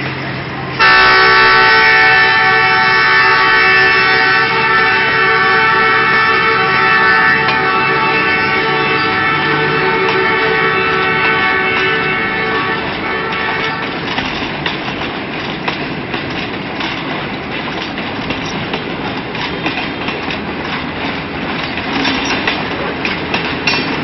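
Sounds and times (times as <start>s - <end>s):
train wheels clattering: 0.0s - 24.0s
train horn: 0.8s - 14.3s.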